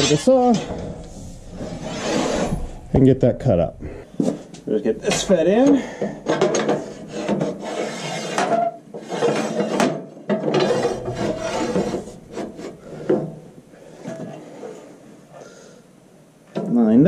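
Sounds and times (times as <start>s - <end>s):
metal pipe scraping against steel: 0.0s - 4.2s, 4.9s - 9.8s, 10.5s - 14.3s.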